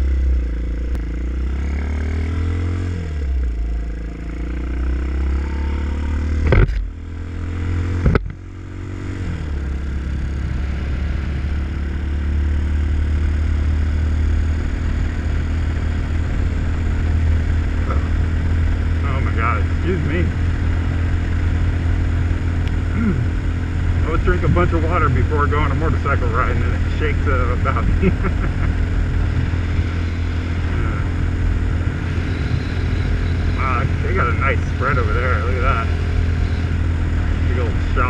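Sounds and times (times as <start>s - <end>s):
motorcycle engine pulling away: 0.0s - 19.3s.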